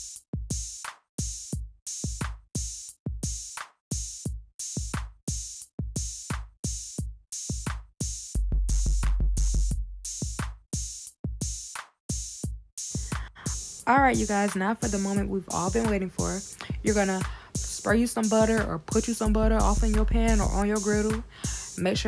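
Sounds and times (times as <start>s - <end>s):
drum-machine beat: 0.0s - 22.0s
deep bass note: 19.3s - 20.6s.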